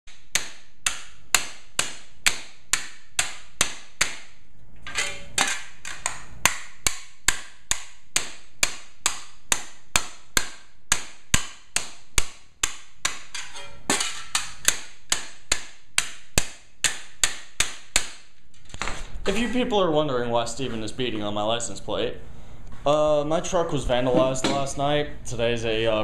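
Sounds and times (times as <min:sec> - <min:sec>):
hammer striking metal plate: 0:00.1 - 0:18.3.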